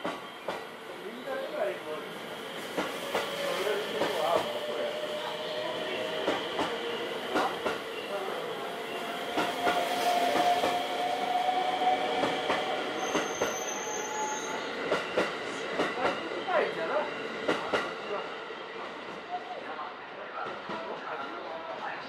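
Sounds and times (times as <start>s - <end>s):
train wheels clicking and knocking: 0.0s - 0.7s, 2.6s - 5.4s, 6.0s - 8.0s, 9.3s - 10.9s, 12.2s - 13.6s, 14.8s - 16.3s, 17.4s - 18.1s
electric train running with high whine: 0.0s - 19.2s.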